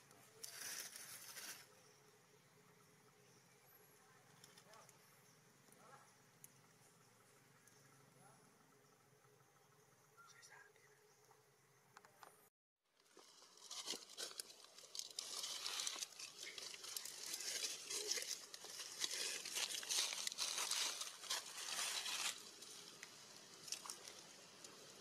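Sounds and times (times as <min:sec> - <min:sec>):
dry leaves crunching: 0:13.0 - 0:24.9.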